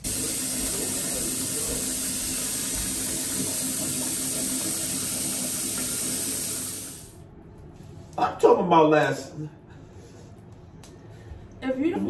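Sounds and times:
water running from bathtub tap: 0.0 - 7.2.

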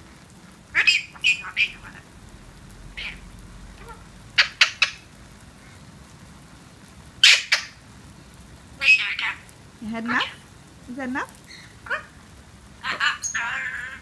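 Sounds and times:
parrot squawking and chattering: 0.7 - 2.2, 2.9 - 5.1, 7.2 - 7.8, 8.8 - 10.5, 11.4 - 14.0.

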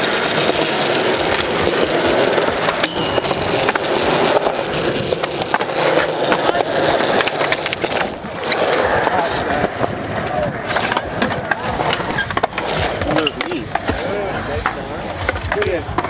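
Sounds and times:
skateboard wheels rolling on concrete: 0.0 - 16.0.

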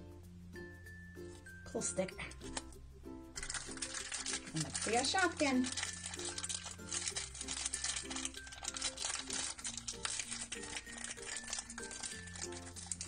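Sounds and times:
plastic packaging crinkling: 3.4 - 13.0.

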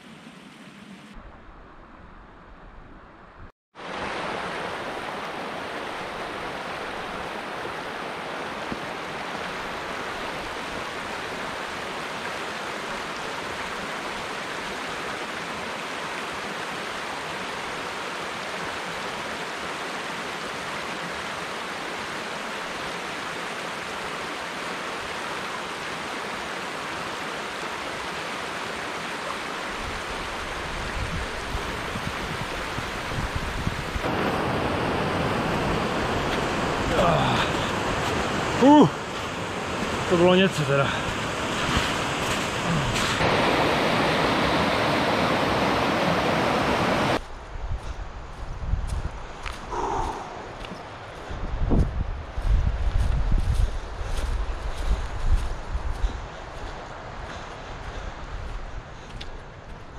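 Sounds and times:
stream rushing over rocks: 3.8 - 47.3.

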